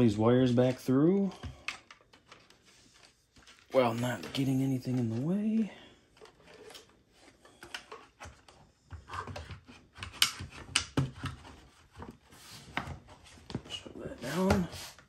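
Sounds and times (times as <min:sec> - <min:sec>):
wires rustling through plastic: 0:00.0 - 0:09.9.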